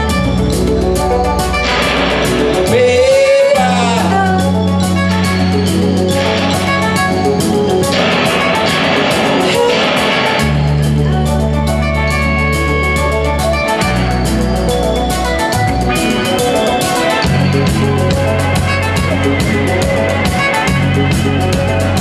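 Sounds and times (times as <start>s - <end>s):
electric guitar: 0.0s - 22.0s
rock band playing live: 0.0s - 22.0s
ticking cymbal beat: 0.0s - 22.0s.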